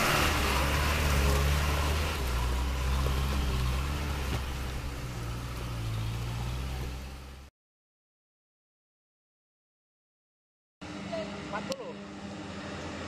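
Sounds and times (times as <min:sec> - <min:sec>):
truck engine running: 0:00.0 - 0:07.5.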